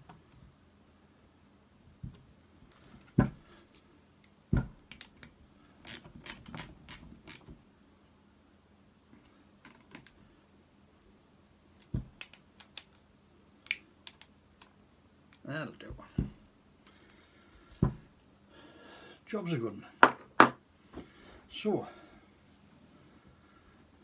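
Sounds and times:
heavy knocks on bench: 0:03.2 - 0:03.4, 0:17.8 - 0:18.1, 0:20.0 - 0:20.6.

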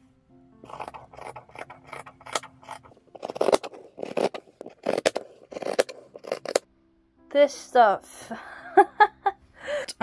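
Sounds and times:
scissors cutting cloth and paper: 0:00.6 - 0:06.6.

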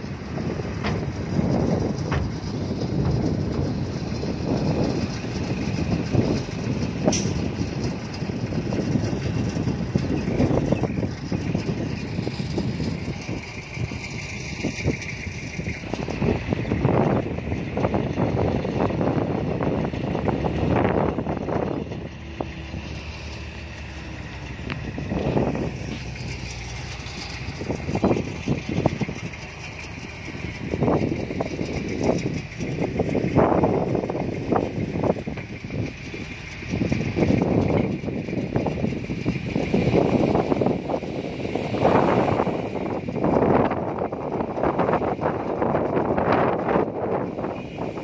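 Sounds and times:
bulldozer diesel engine running: 0:00.0 - 0:48.0
distant machinery hum: 0:00.0 - 0:48.0
steel tracks clanking and rattling: 0:00.0 - 0:48.0
wind buffeting microphone: 0:00.0 - 0:48.0
sharp metallic sound: 0:07.0 - 0:07.6.

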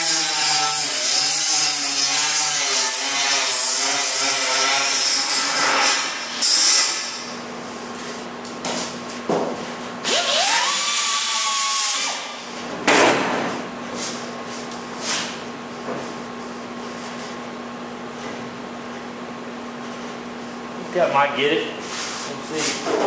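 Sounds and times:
power grinder grinding steel: 0:00.0 - 0:07.2.

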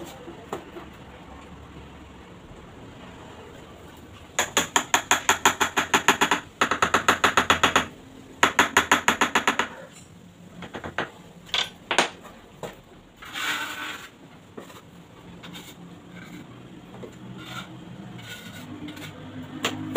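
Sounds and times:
knocks: 0:04.4 - 0:09.8
rapid tapping on ceramic tile: 0:04.4 - 0:09.8, 0:10.6 - 0:11.2
short scrape: 0:13.2 - 0:14.8, 0:17.3 - 0:19.2.

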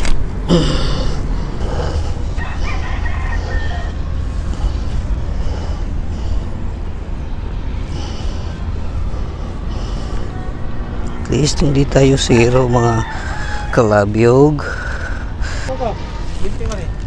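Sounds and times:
steady low rumble: 0:00.0 - 0:17.0
distant rooster crowing: 0:02.2 - 0:04.7, 0:11.7 - 0:15.6.

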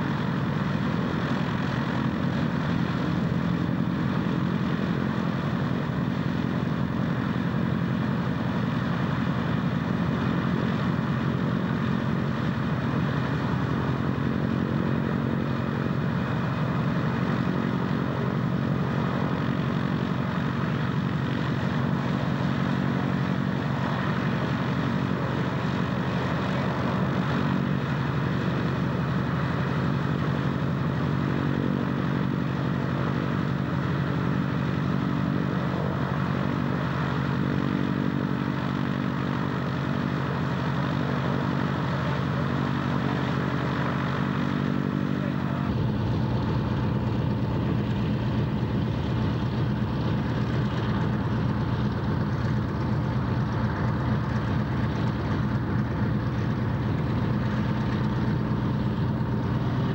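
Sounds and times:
radial engine running: 0:00.0 - 0:59.9
deeper engine rumble: 0:35.4 - 0:59.9.

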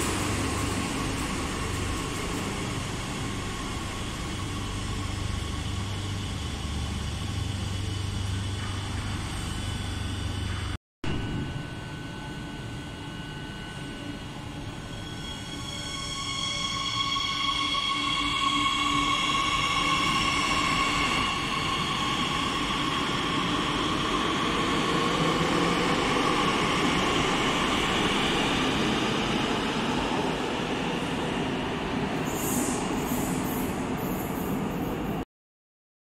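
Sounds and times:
electric train whine: 0:00.0 - 0:35.2
train wheel squeals: 0:13.5 - 0:30.4, 0:32.2 - 0:35.2.

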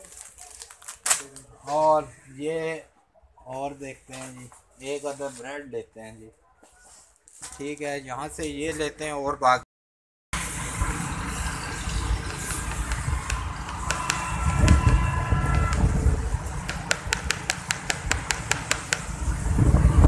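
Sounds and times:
wind: 0:00.0 - 0:09.6, 0:10.3 - 0:20.0
vehicle road rumble: 0:10.4 - 0:20.0.

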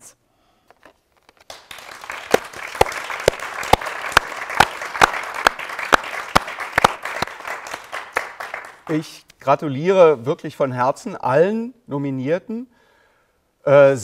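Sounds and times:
hand clapping: 0:01.4 - 0:09.0.

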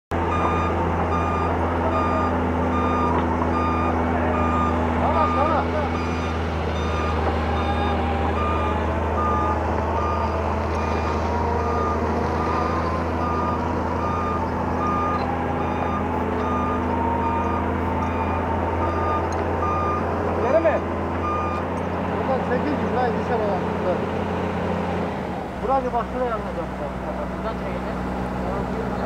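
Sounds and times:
diesel engine running: 0:00.1 - 0:29.0
travel alarm beeping: 0:00.3 - 0:20.1, 0:21.2 - 0:21.7.

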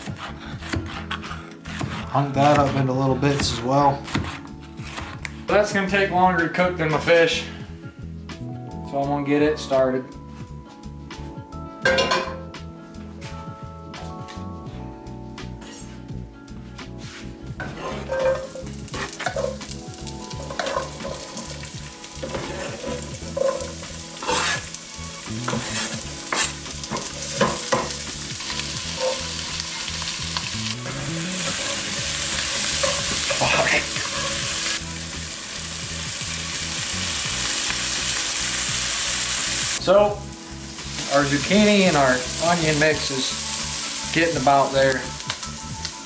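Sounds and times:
spatula scraping a pan: 0:00.0 - 0:03.0, 0:17.1 - 0:30.0, 0:30.8 - 0:34.8
vegetables sizzling in oil: 0:17.6 - 0:46.0.

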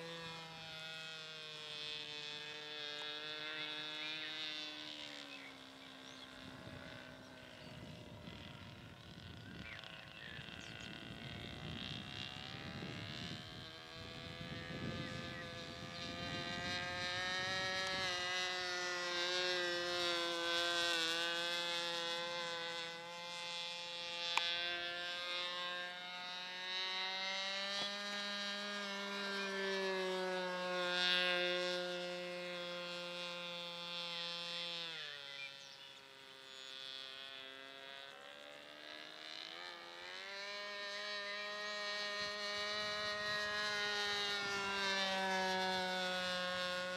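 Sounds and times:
model airplane engine buzzing: 0:00.0 - 0:46.9
wind rumble on microphone: 0:06.3 - 0:18.8.

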